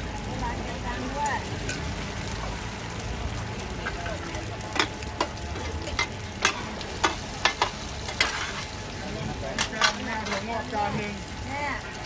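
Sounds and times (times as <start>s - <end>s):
pancakes sizzling in oil: 0.0s - 12.0s
metal spatulas scraping a pan: 5.6s - 8.8s, 9.5s - 10.6s.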